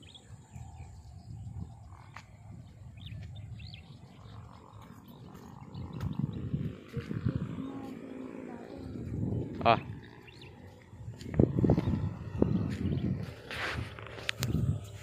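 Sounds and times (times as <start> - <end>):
bird chirps: 0.0 - 10.9
wind buffeting microphone: 0.0 - 15.0.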